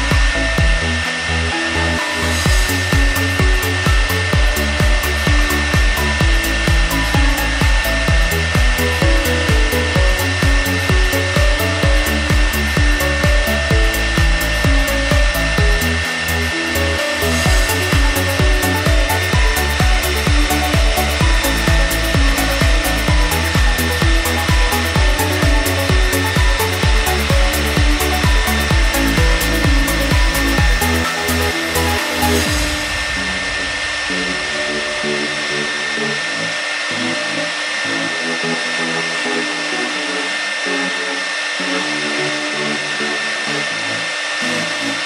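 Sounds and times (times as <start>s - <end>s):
background music with steady beat: 0.0s - 45.0s
router spindle high whine: 0.0s - 45.0s.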